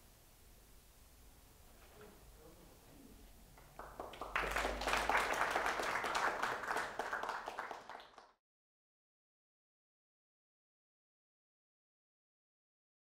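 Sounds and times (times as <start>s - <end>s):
audience applauding: 3.6s - 8.4s.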